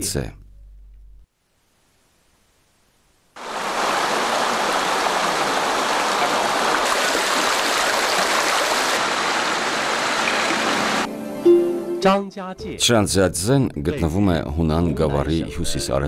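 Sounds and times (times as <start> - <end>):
stream running over rocks: 3.4 - 11.1.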